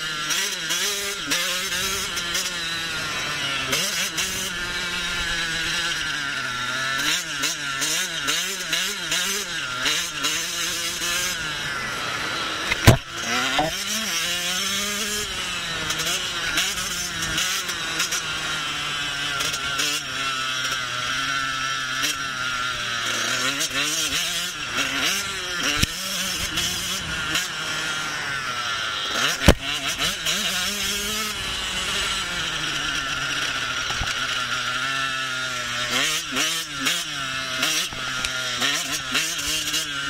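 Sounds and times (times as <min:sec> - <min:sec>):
motocross engine revving: 0:00.0 - 0:40.0
sharp thump: 0:12.7 - 0:13.7.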